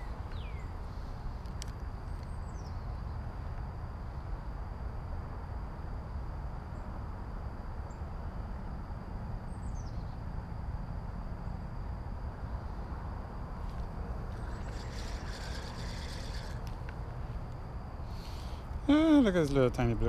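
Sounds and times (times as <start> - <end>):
faint bird chirps: 0.0 - 1.1, 2.1 - 3.2, 9.5 - 10.3, 14.3 - 16.6
high insect drone: 0.0 - 20.0
low steady rumble: 0.0 - 20.0.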